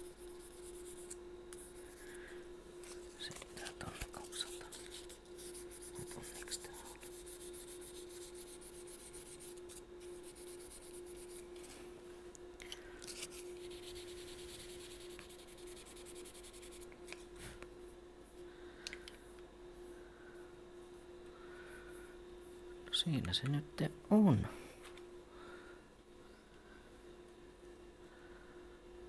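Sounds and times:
sandpaper rubbing on wood: 4.5 - 9.6, 10.2 - 11.4, 13.7 - 16.9.

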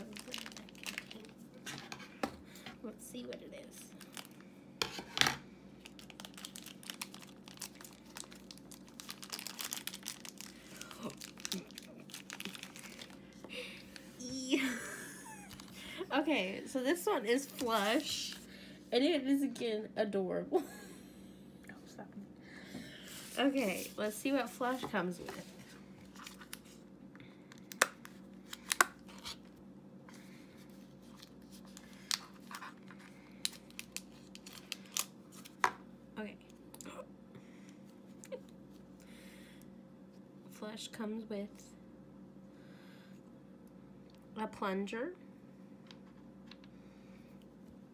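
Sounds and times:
packaging rustling: 0.0 - 1.4, 5.8 - 13.3, 31.0 - 35.7
plastic pouch crinkling: 0.0 - 1.4, 4.0 - 4.4, 5.8 - 14.0, 31.0 - 35.6.

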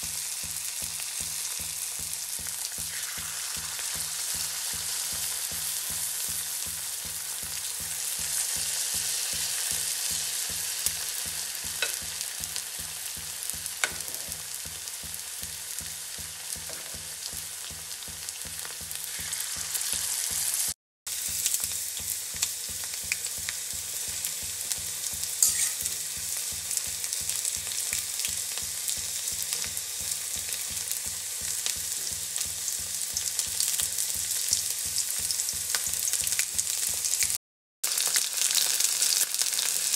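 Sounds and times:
deep-frying oil sizzling: 0.0 - 39.9
spoon clicking against pan: 9.3 - 14.4, 25.4 - 26.3.

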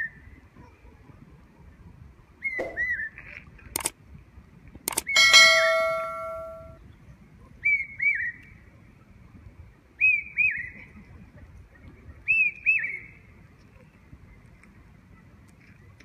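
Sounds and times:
click and bell chime effect: 5.2 - 6.8.

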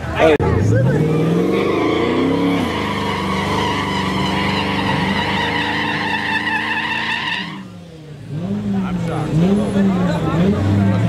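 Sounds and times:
car engine revving high: 0.0 - 11.0
tyres squealing: 0.6 - 7.7.

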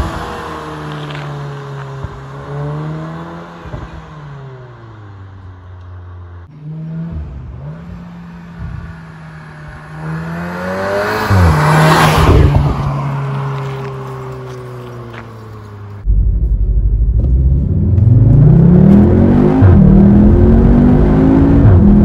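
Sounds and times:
car engine and exhaust under load: 0.0 - 22.0
tyre and wind noise: 11.1 - 18.2.

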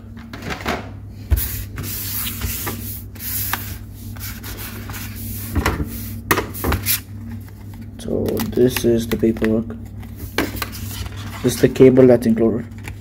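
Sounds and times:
paper and packaging rustling: 6.8 - 11.9.

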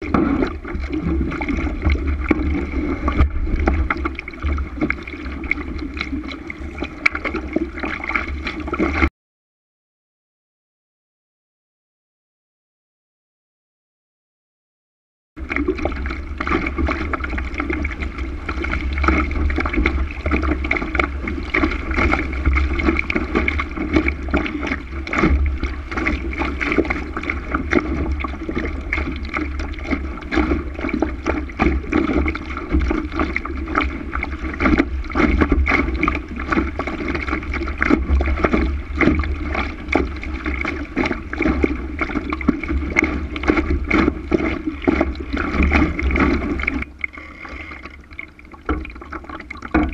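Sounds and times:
water splashing against hull: 0.0 - 9.1, 15.4 - 49.9
wind rumble on microphone: 0.0 - 9.1.

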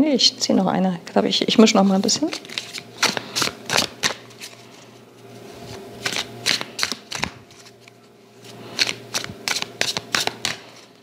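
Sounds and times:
cards rustling while shuffled: 1.9 - 11.0
crisp card flicks: 6.0 - 7.4, 8.8 - 10.7.

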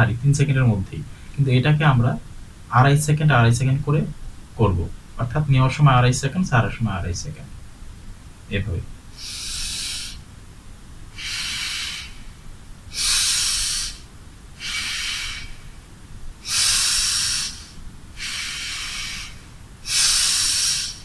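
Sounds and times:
deep breathing through nose: 9.1 - 10.3, 11.1 - 21.0.

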